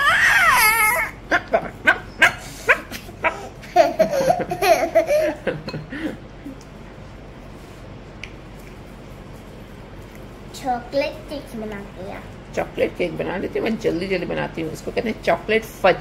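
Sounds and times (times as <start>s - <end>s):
young child laughing: 0.1s - 5.6s.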